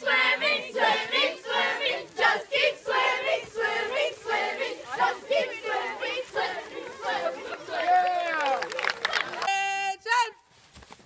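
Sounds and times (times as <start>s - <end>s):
young voices chanting cadence: 0.0s - 9.6s.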